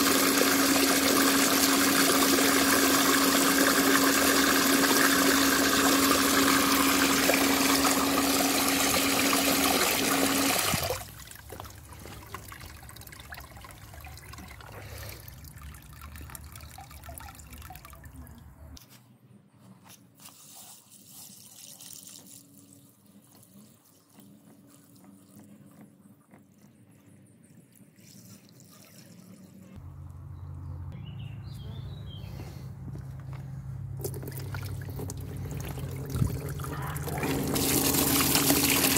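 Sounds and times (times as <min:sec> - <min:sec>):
filter pump hum: 0:00.0 - 0:18.0, 0:34.0 - 0:38.9
water gushing into plastic tub: 0:00.0 - 0:18.2, 0:34.0 - 0:38.9
faint water trickling: 0:10.8 - 0:18.8, 0:33.9 - 0:38.9.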